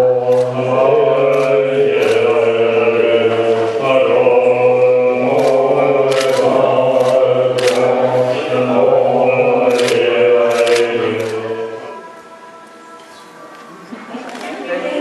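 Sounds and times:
monks chanting in low voices: 0.0 - 13.0
sharp clicks: 5.4 - 7.9.

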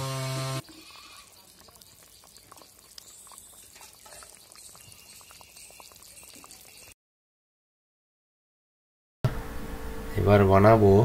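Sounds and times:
curry bubbling with small pops: 0.6 - 7.0.

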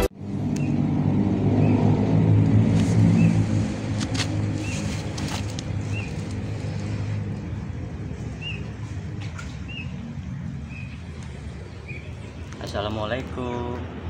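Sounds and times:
vehicle engine rumble: 0.0 - 14.0
bird chirping: 5.8 - 6.2, 8.4 - 8.7, 9.6 - 10.0, 10.6 - 12.5.

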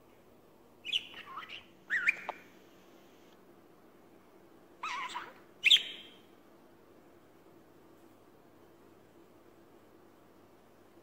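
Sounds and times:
budgerigar chirping: 0.8 - 2.4, 4.8 - 6.2.

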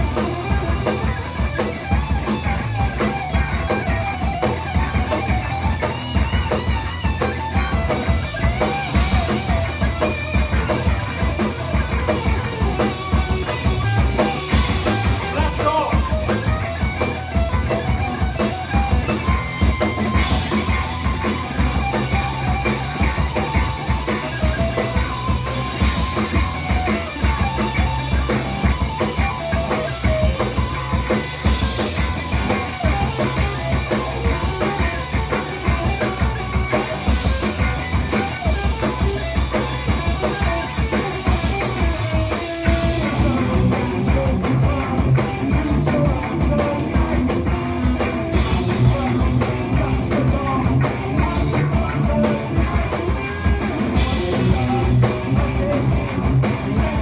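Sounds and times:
drum kit steady beat: 0.0 - 57.0
electric bass: 0.0 - 57.0
electric guitar: 0.0 - 57.0.

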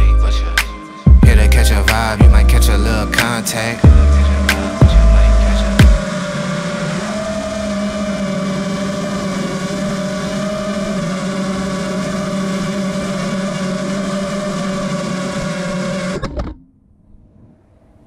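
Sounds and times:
drone motors whining: 0.0 - 16.6.

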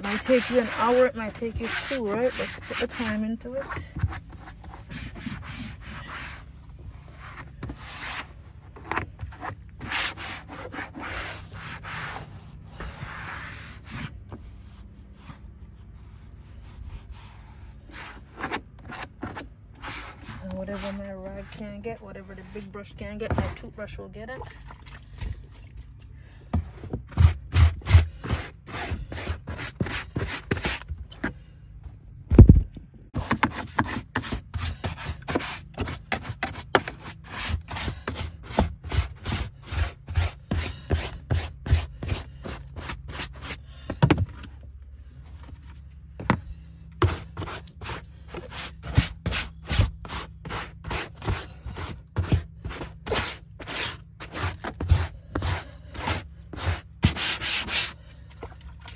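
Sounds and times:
scrub brush scrubbing carpet: 0.0 - 6.5, 9.4 - 18.3, 19.8 - 23.7, 47.0 - 58.0.

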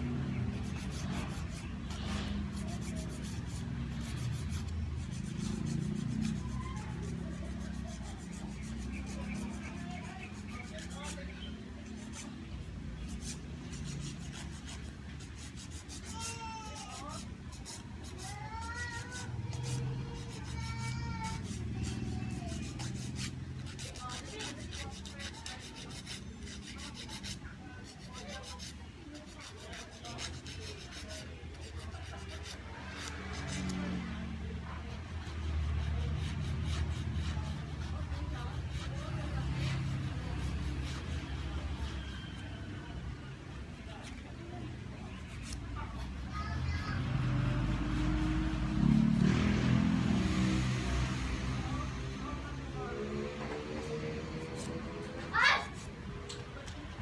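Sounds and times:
nail file rasping: 0.1 - 11.2, 13.0 - 34.1, 34.8 - 42.4, 54.2 - 55.2.

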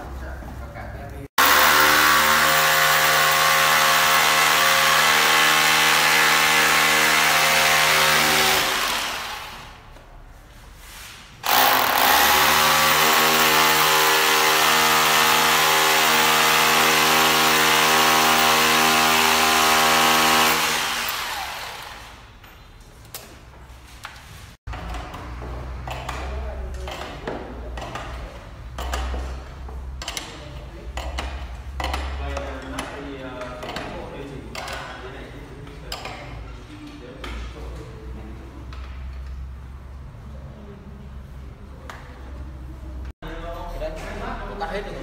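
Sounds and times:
electric drill boring into wall: 1.4 - 9.8, 11.4 - 22.2.

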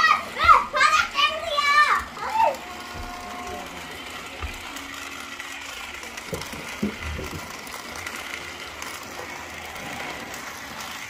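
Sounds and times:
toy car whirring on plastic track: 0.0 - 11.0.

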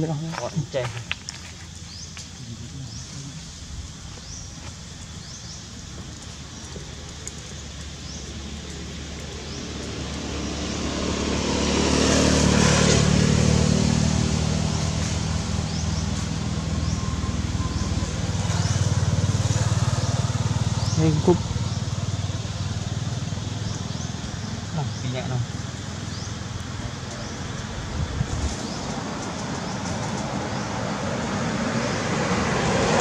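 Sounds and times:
vehicle approaching: 1.0 - 33.0
vehicle driving past: 8.4 - 33.0.

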